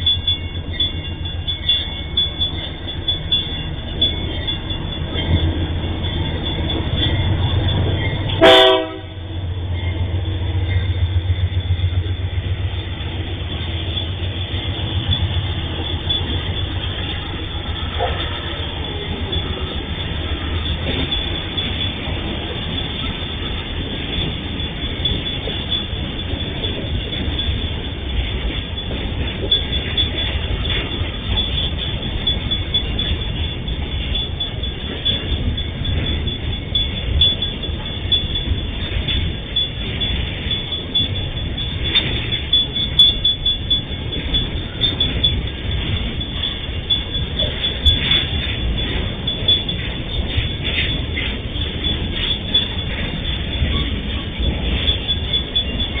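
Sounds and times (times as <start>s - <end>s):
locomotive engines droning: 0.0s - 56.0s
loud horn blast: 8.4s - 9.3s.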